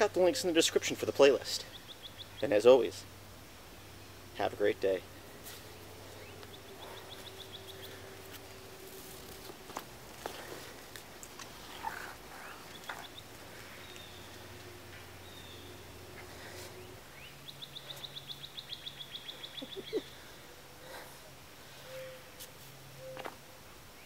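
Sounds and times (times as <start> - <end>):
birds chirping: 0.0 - 24.0
rapid bird trill: 5.7 - 9.4.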